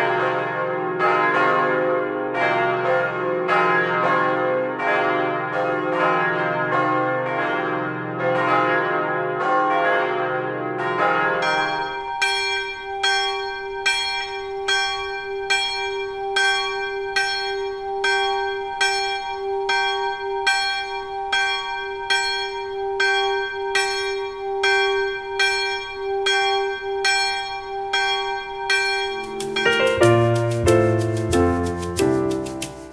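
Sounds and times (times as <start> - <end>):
single small church bell ringing: 0.0 - 30.1
church bells pealing: 0.0 - 32.9.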